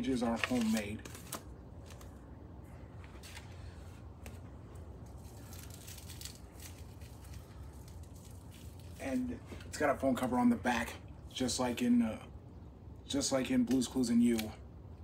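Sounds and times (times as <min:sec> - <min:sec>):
notebook handling clicks and rustles: 0:00.0 - 0:02.2, 0:03.0 - 0:08.9
low steady hum: 0:00.0 - 0:15.0.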